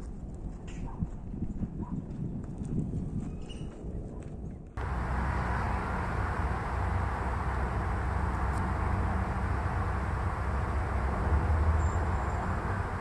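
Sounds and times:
outdoor rumble and hiss: 4.8 - 13.0.

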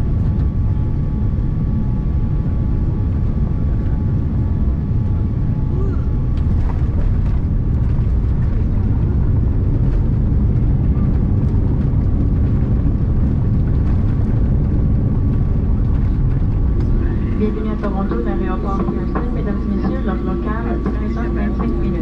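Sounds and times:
low rumble of wheels and airflow: 0.0 - 22.0.

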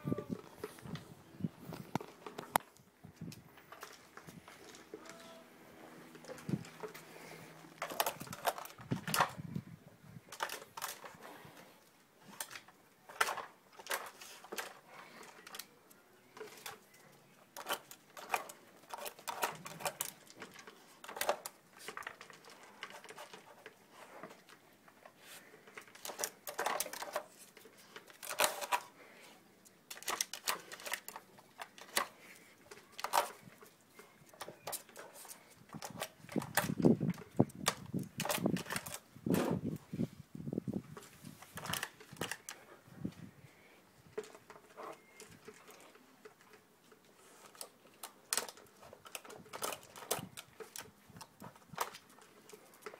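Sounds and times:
plastic puzzle feeder clattering: 6.1 - 9.5, 10.2 - 11.4, 12.2 - 29.2, 29.9 - 39.5, 40.9 - 42.7, 44.1 - 52.9.

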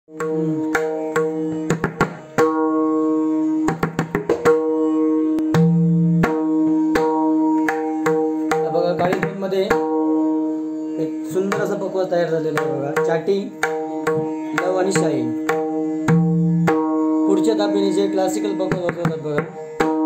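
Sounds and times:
drum head struck with fingers: 0.2 - 2.6, 3.6 - 4.7, 5.3 - 10.0.

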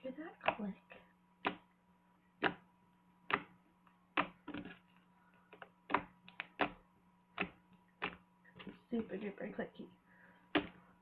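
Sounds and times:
slime clicking under fingertips: 5.6 - 8.2.

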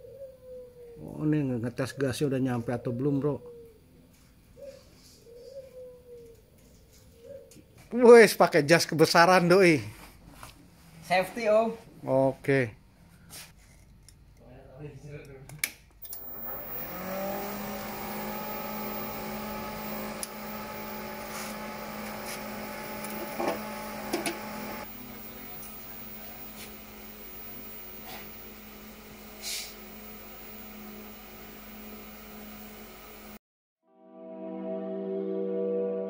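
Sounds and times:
welder cooling fan humming: 16.0 - 33.4.

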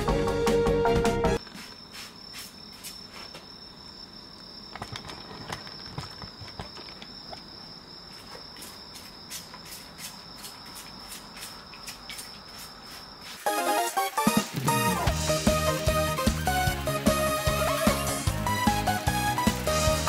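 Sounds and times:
crickets chirping: 1.4 - 15.1.

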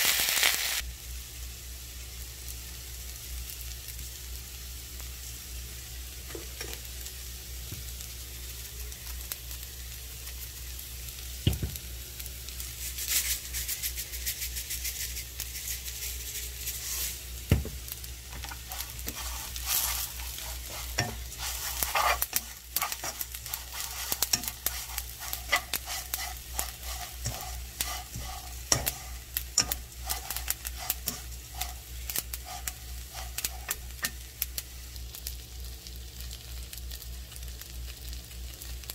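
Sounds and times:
leaves sizzling in a frying pan: 0.0 - 38.9
steady low hum: 17.2 - 35.2
chopsticks scraping and clicking: 18.3 - 34.2.

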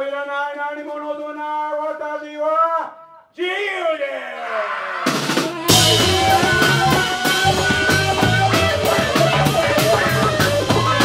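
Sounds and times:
drum kit beat: 5.1 - 11.0
live band playing: 5.1 - 11.0
trumpet and horns: 5.4 - 11.0
electric guitar: 5.6 - 11.0.

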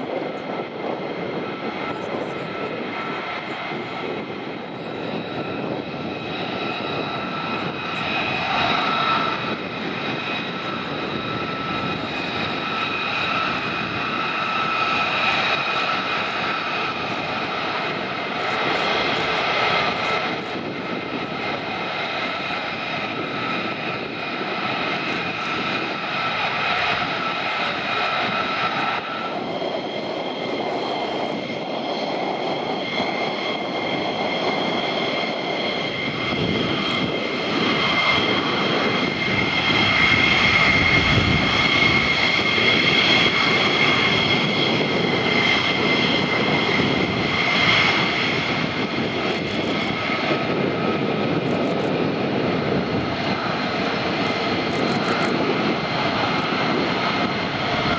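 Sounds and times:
jet engines whining and rumbling: 0.0 - 57.9.

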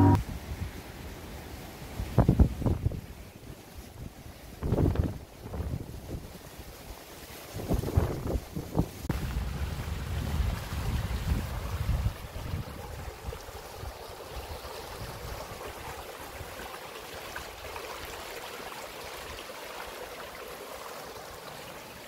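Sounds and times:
rocky stream babbling: 12.2 - 22.0.

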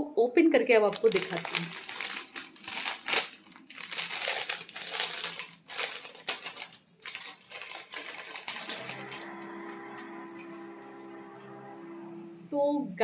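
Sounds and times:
plastic packet crinkling: 0.8 - 9.3.

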